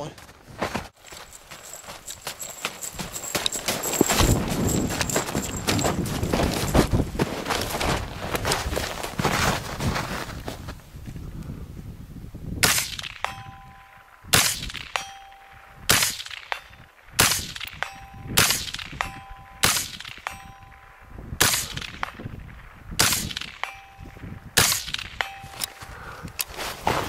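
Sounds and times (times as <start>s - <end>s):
steel target ringing: 13.1s - 17.0s, 17.6s - 21.2s, 23.3s - 26.0s.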